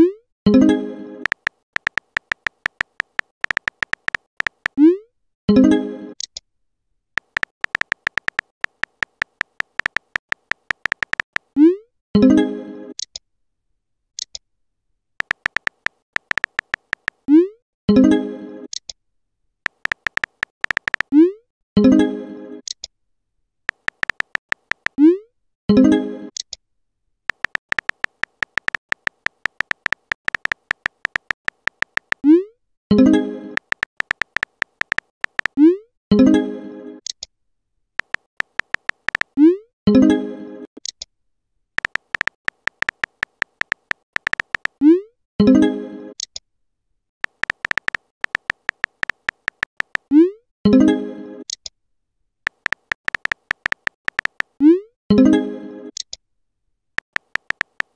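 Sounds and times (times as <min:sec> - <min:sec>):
keyboard tap clicks: 0:01.3 - 0:04.8, 0:07.2 - 0:11.5, 0:15.2 - 0:17.2, 0:19.7 - 0:21.1, 0:23.7 - 0:25.0, 0:27.3 - 0:32.2, 0:33.6 - 0:35.6, 0:38.0 - 0:39.3, 0:41.8 - 0:44.8, 0:47.2 - 0:50.1, 0:52.5 - 0:54.6, 0:57.0 - 0:57.9.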